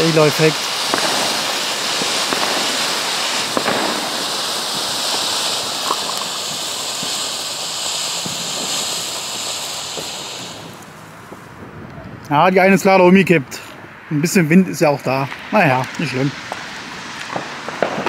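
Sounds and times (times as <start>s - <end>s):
firework fountains hissing: 0.0s - 11.6s, 14.2s - 18.0s
small crackles: 3.3s - 7.4s.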